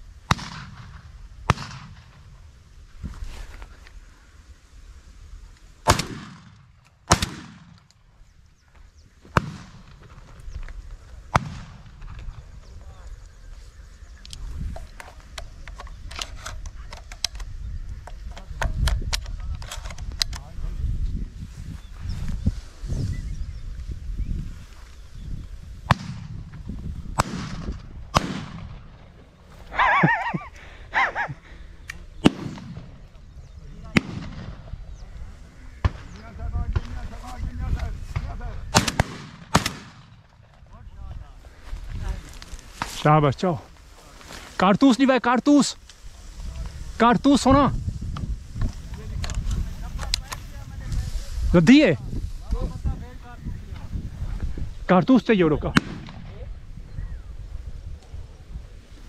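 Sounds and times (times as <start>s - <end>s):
shotgun shots echoing: 0.3s - 2.2s, 5.8s - 7.9s, 9.3s - 10.0s, 11.3s - 12.1s, 27.2s - 29.2s, 32.2s - 33.0s, 33.9s - 34.7s, 38.2s - 40.4s, 55.7s - 56.4s
wavering animal calls: 29.6s - 31.8s.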